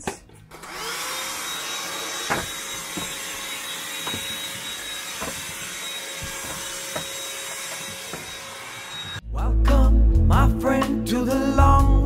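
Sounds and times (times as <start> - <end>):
handheld vacuum motor whine: 0.5 - 9.2.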